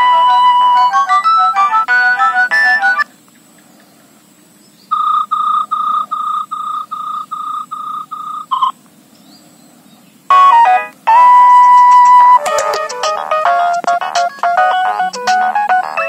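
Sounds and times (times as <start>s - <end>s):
high phone beep: 0.0s - 3.0s, 4.9s - 8.7s, 10.3s - 16.0s
ringtone melody: 0.0s - 3.0s, 10.3s - 16.0s.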